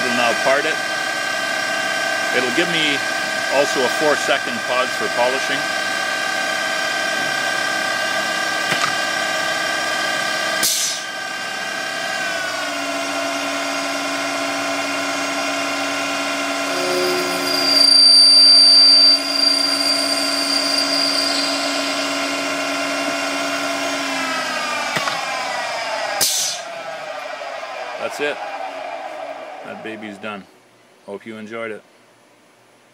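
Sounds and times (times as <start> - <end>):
lathe whine: 0.0 - 30.4
tool squealing on metal: 16.6 - 22.4.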